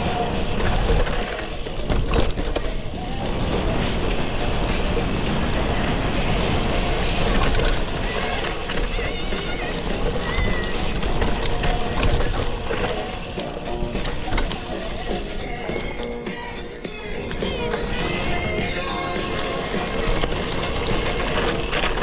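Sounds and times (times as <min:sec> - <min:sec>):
bike tyres rolling on gravel: 0:00.0 - 0:16.0, 0:17.4 - 0:22.0
bike rattling over bumps: 0:00.0 - 0:16.2, 0:16.9 - 0:22.0.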